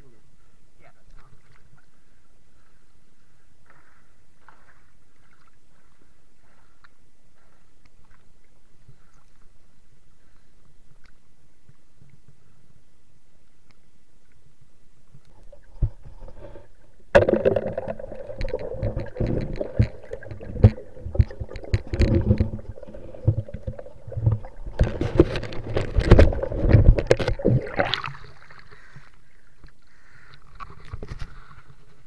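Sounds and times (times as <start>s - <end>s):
muffled underwater knocks and clatter: 17.2s - 27.8s.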